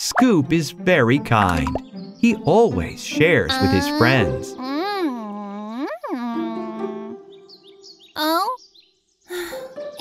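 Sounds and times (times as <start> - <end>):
light background music: 0.0 - 8.4, 9.3 - 10.0
faint high bird chirps: 5.8 - 10.0.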